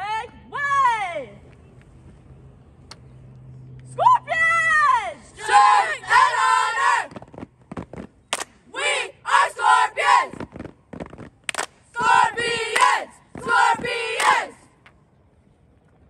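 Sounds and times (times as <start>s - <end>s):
group shouting chant in unison: 5.4s - 7.1s, 12.0s - 14.6s
hand clap: 11.5s - 11.8s.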